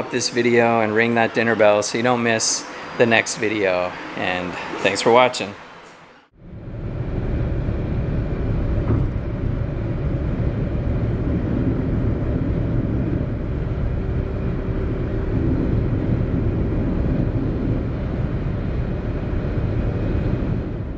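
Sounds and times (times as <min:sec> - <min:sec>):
car road and engine rumble: 0:05.6 - 0:20.9.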